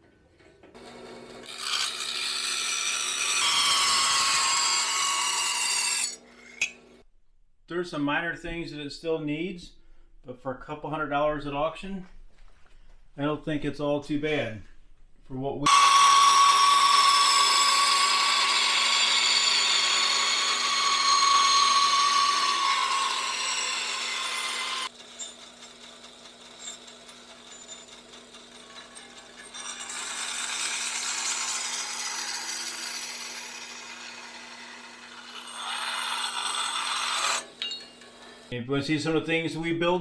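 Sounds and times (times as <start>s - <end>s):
bandsaw blade cutting metal: 1.4s - 6.8s, 15.7s - 38.5s.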